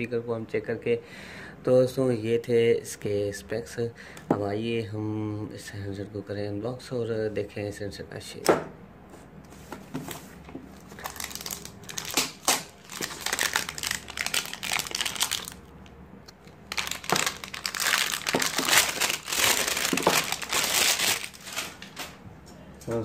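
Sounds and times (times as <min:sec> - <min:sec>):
plastic wrap crackling and crinkling: 0:10.7 - 0:15.7, 0:16.4 - 0:22.2.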